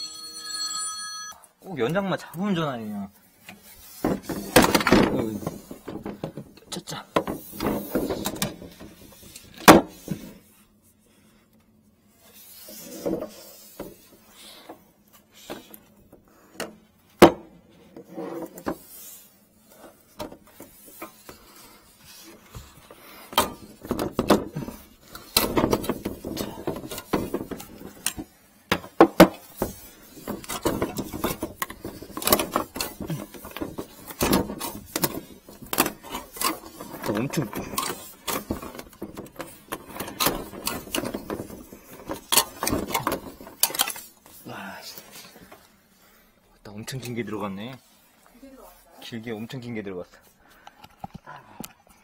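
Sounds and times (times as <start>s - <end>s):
plastic pipes knocking and clunking: 3.5s - 10.3s, 15.4s - 18.8s, 20.1s - 44.0s
hose rubbing and scraping: 12.1s - 14.3s, 29.4s - 44.5s.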